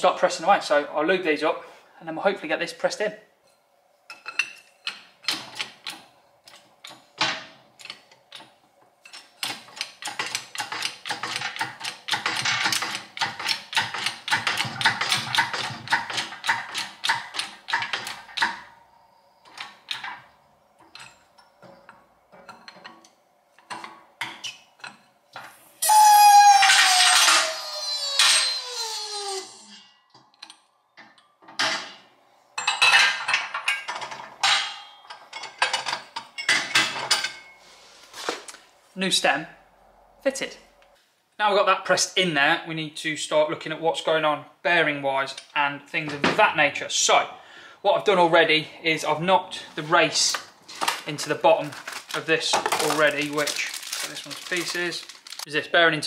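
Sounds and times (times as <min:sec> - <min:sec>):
pump handle clicking and rattling: 0:07.8 - 0:18.7
loud falling squeal: 0:25.7 - 0:30.0.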